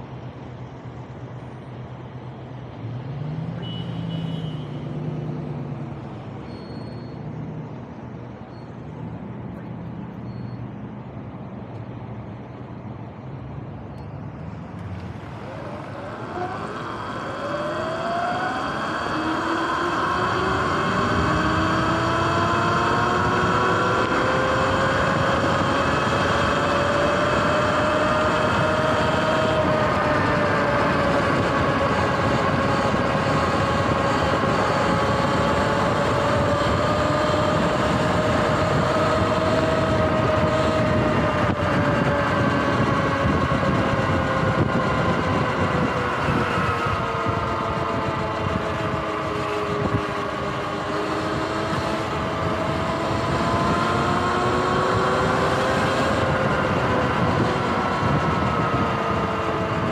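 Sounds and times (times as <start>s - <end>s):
wind rushing over microphone: 11.0s - 59.9s
electric motor whine: 14.8s - 59.9s.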